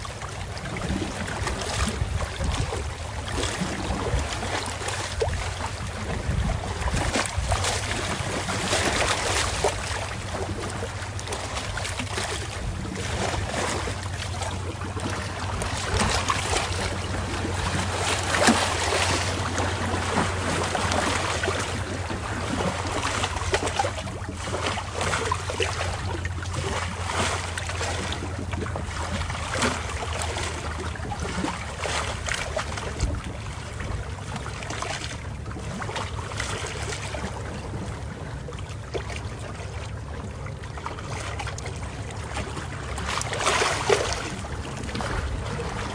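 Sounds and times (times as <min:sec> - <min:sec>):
steady low hum: 0:00.0 - 0:45.9
water splashes and knocks: 0:00.0 - 0:45.9
wind on the microphone: 0:00.7 - 0:04.5, 0:05.2 - 0:09.0.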